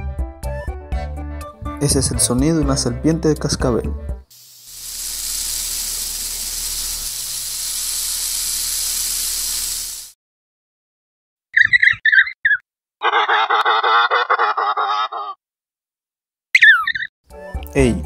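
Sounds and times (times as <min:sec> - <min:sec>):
rattlesnake rattle buzzing: 0:04.3 - 0:10.2.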